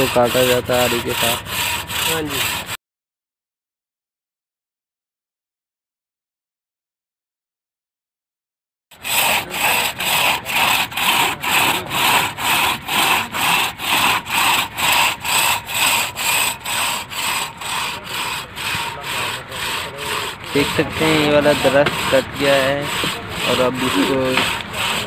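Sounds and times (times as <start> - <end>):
hand saw cutting through wood: 0.0 - 2.8, 9.0 - 25.0.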